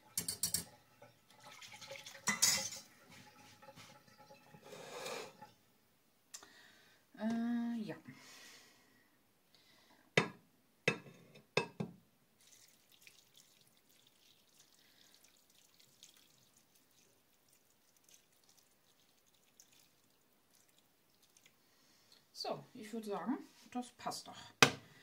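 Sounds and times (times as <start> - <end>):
kitchenware knocking: 0.0 - 1.0, 10.2 - 11.9
liquid dripping: 0.0 - 5.6, 12.4 - 21.8.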